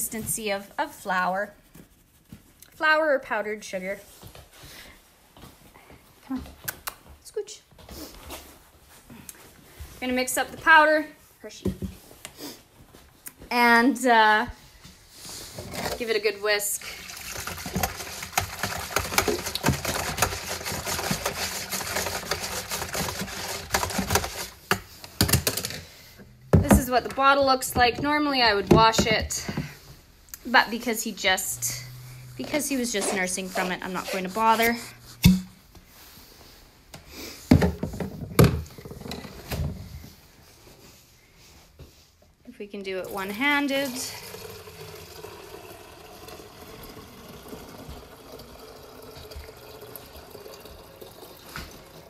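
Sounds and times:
whisk scraping plastic pail: 15.3s - 25.9s, 26.6s - 29.8s, 30.5s - 35.6s
hollow thumps: 26.4s - 29.8s.

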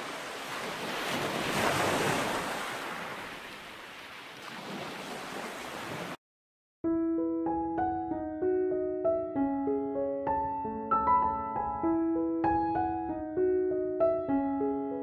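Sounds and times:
ocean surf washing onto beach: 0.0s - 6.2s
slow piano music: 6.8s - 15.0s.

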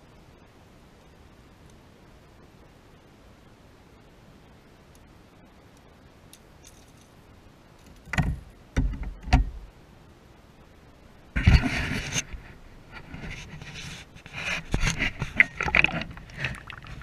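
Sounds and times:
knocks and clatters in a boat: 8.1s - 9.7s
rustling: 11.5s - 17.0s.

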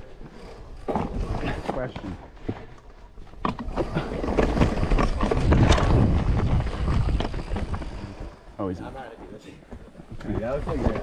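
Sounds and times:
bike tyres rolling over dirt: 0.0s - 11.0s
bike knocks and rattles: 3.4s - 8.1s, 9.1s - 11.0s
wind buffeting microphone: 4.2s - 9.4s.

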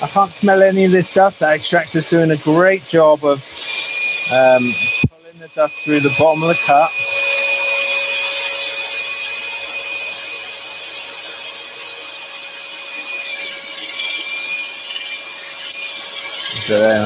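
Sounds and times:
dust extractor drawing air: 0.0s - 17.0s
scroll saw cutting wood: 0.0s - 17.0s.

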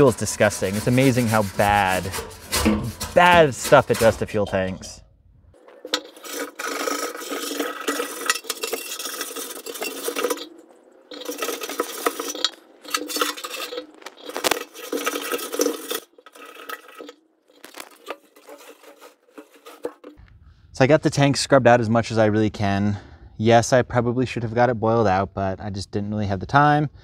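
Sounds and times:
scrubbing inside metal tank: 0.0s - 20.2s.

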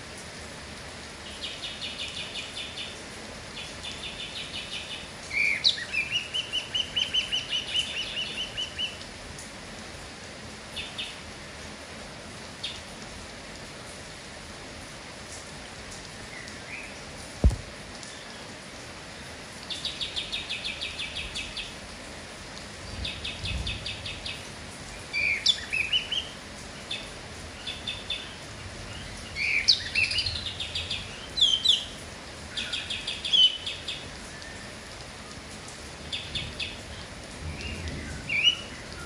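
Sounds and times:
rain hissing: 0.0s - 39.0s
bird singing trills and whistles: 4.0s - 9.0s, 25.2s - 26.3s, 29.0s - 31.9s, 32.6s - 34.6s, 37.6s - 39.0s
sharp knock: 17.4s - 17.7s.

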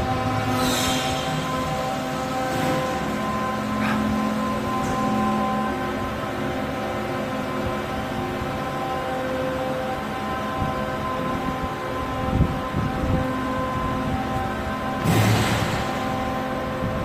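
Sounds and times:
machinery humming: 0.0s - 17.0s.

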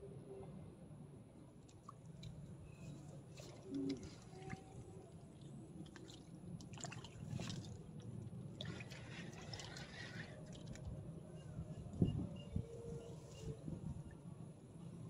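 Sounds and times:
fish splashing at water surface: 3.3s - 10.9s.

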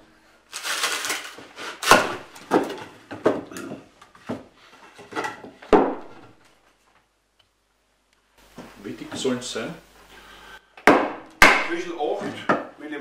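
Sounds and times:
wood fibres tearing: 0.5s - 2.4s
sharp wooden knocks and cracks: 1.8s - 3.5s, 5.2s - 6.4s.

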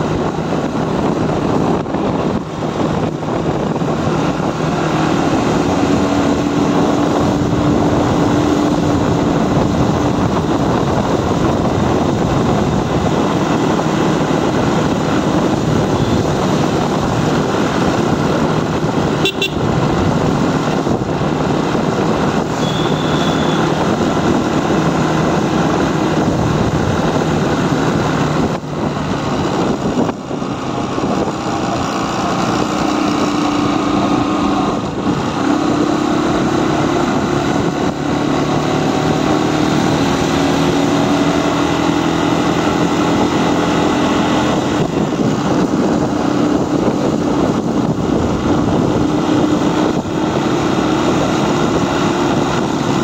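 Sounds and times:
motorcycle engine running: 0.0s - 53.0s
wind rush on microphone: 0.0s - 53.0s
high beeps: 22.6s - 23.6s.

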